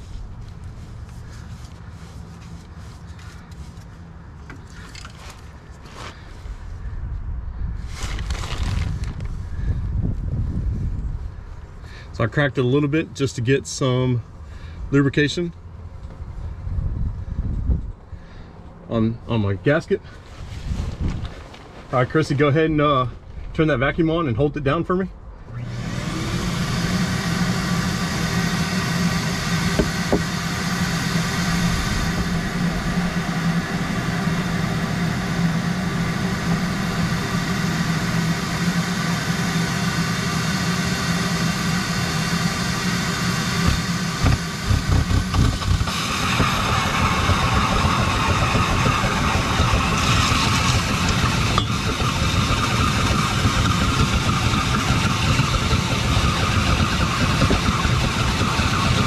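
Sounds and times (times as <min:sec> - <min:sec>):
shop vacuum running: 0:25.4 - 0:59.0.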